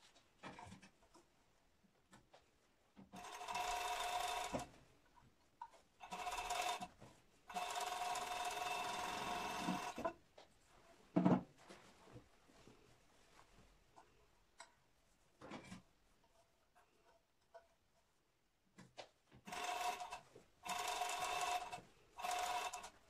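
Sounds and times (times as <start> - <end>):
overlock sewing machine running: 3.1 - 4.7, 6.0 - 6.9, 7.5 - 10.1, 19.4 - 23.0.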